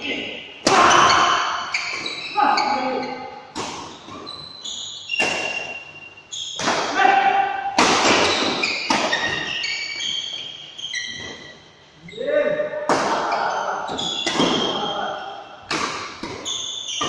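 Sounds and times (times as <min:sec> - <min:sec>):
shoes squeaking on court floor: 0:00.8 - 0:06.9, 0:08.0 - 0:12.2, 0:13.2 - 0:17.0
rackets smacking shuttlecock: 0:03.5 - 0:04.3, 0:14.0 - 0:14.9, 0:15.6 - 0:17.0.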